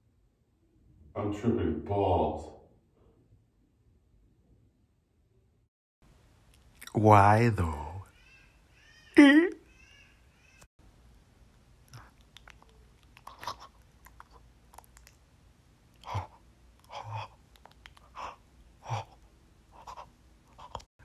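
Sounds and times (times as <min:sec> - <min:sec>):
mouth smacks and puffs: 0:11.8 - 0:20.9.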